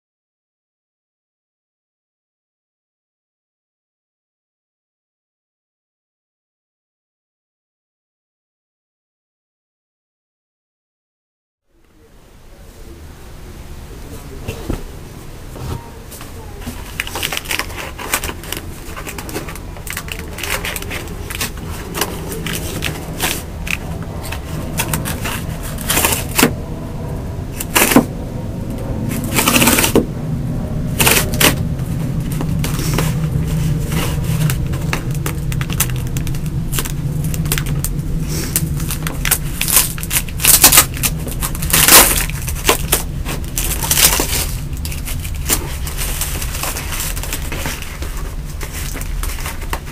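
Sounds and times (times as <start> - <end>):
steady low hum: 11.7 - 49.9
cardboard box crinkling and scraping: 14.5 - 26.6, 27.5 - 28.1, 29.0 - 30.1, 30.9 - 49.9
cardboard tearing: 16.6 - 26.6, 27.5 - 28.1, 29.1 - 30.1, 31.0 - 49.9.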